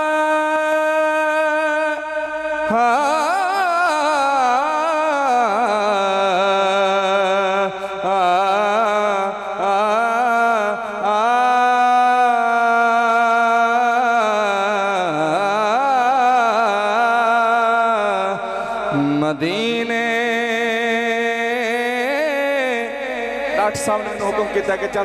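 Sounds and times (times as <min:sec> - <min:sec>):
man singing devotional song: 0:00.0 - 0:25.0
man speaking: 0:23.2 - 0:25.0.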